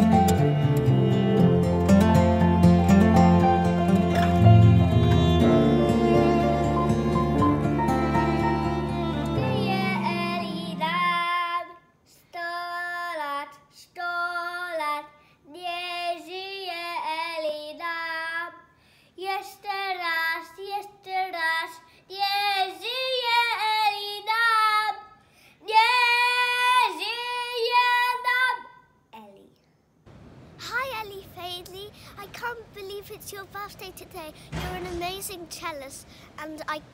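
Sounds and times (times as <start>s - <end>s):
recorded string music: 0.0s - 11.0s
boy singing unaccompanied: 8.4s - 28.8s, 30.6s - 36.9s.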